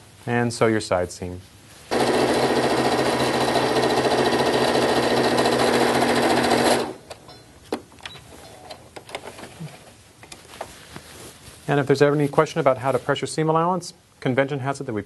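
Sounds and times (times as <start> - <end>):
sewing machine running: 1.9 - 7.0.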